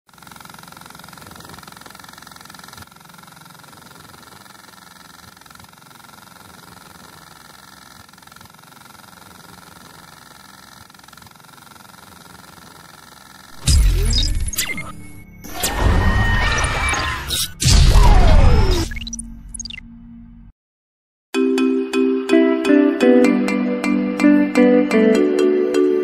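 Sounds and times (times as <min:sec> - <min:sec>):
model helicopter motor whine: 0:00.1 - 0:18.9.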